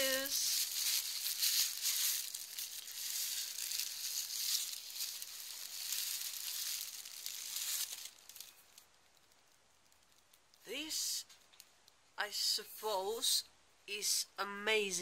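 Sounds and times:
bubble wrap crinkling: 0.0s - 12.0s.

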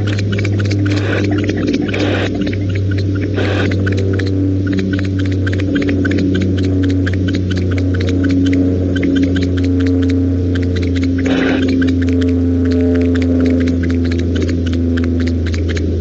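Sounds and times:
electrical mains hum: 0.0s - 16.0s
rapid crackling clicks: 0.0s - 16.0s.

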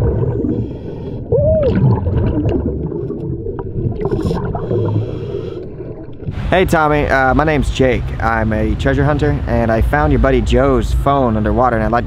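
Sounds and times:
scuba regulator bubbling: 0.0s - 6.7s.

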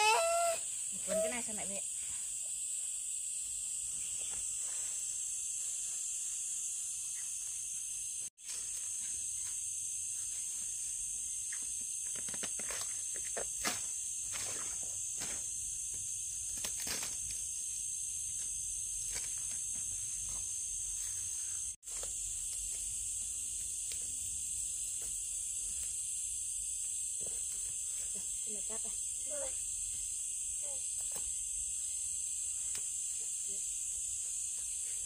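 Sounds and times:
insects droning: 0.0s - 35.0s.

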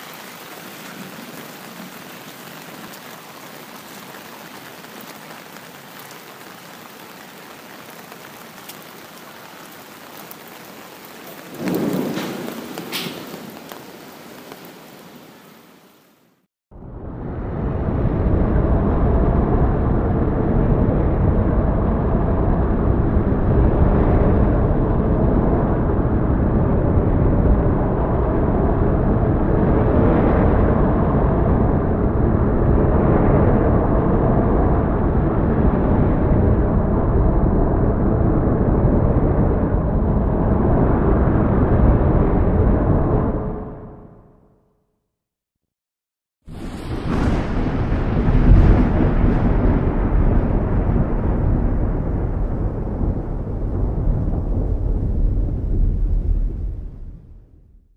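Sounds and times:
heavy rain pouring: 0.0s - 16.4s, 46.5s - 56.9s
deep rumble: 16.7s - 44.4s, 46.5s - 57.9s.

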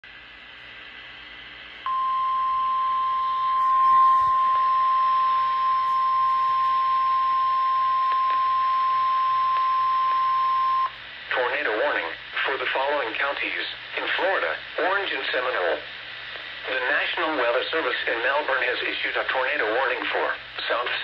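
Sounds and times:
faint radio hiss: 0.1s - 21.0s
loud steady alarm tone: 1.9s - 10.9s.

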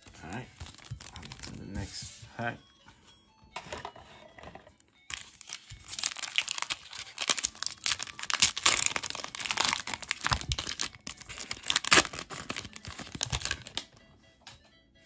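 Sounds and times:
foil wrapper crinkling and tearing: 0.4s - 1.6s, 5.1s - 13.9s.

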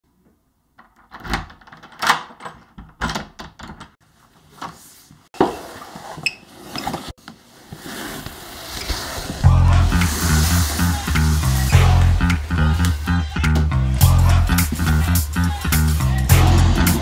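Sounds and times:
door hardware clicking and knocking: 0.8s - 4.0s.

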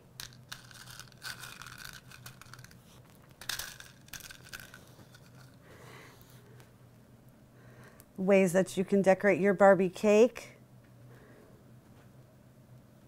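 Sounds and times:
plastic crinkle: 0.2s - 5.6s
plastic piping bag rustling: 0.2s - 5.6s.

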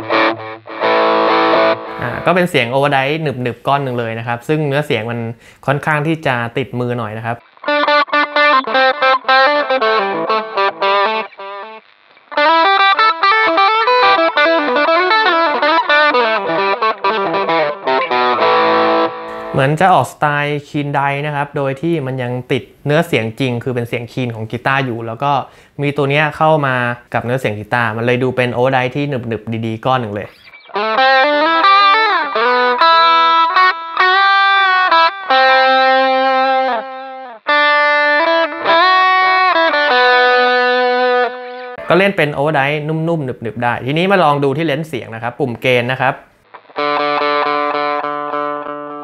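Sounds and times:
overdriven electric guitar lead: 0.0s - 2.4s, 7.4s - 19.6s, 30.3s - 42.0s, 46.3s - 49.0s.

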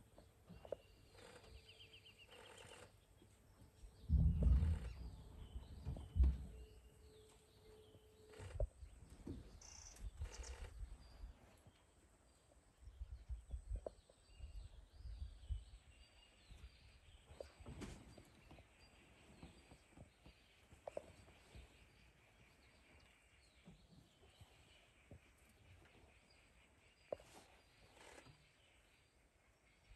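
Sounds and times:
faint bird chirps: 0.5s - 3.1s, 4.0s - 29.9s
rumbles and thuds on microphone: 4.0s - 6.8s.

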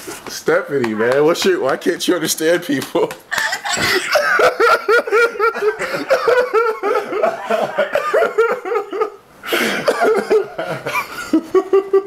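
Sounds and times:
man laughing hard: 3.3s - 12.0s.

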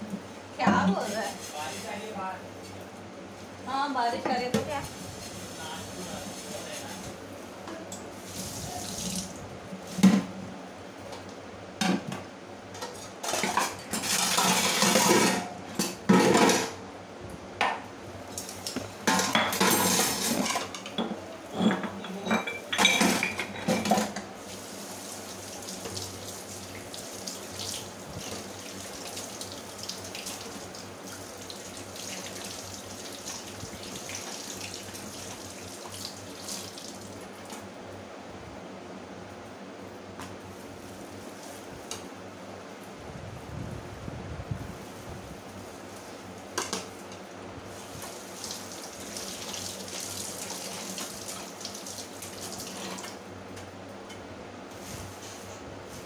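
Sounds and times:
dishes clattering in a sink: 11.8s - 16.8s, 18.8s - 24.3s, 46.6s - 46.9s
tap water running: 22.5s - 37.7s, 47.7s - 53.7s.

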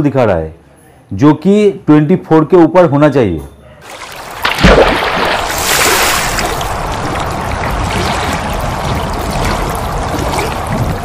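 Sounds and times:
pouring splashing water: 3.8s - 11.0s.

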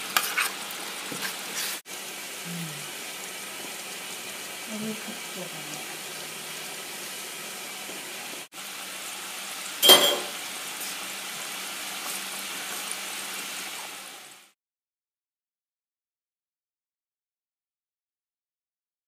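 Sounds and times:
sharp clink: 9.8s - 10.3s.

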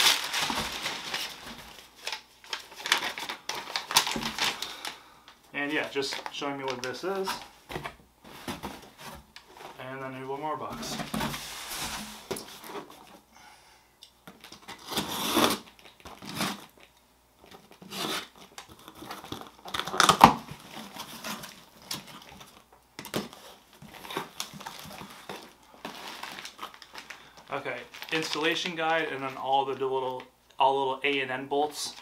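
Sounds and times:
cardboard rustling and tearing: 0.0s - 4.7s, 10.6s - 13.2s, 14.4s - 16.8s, 17.4s - 27.1s
packing material crinkling: 0.0s - 5.0s, 5.6s - 7.5s, 14.3s - 30.3s.

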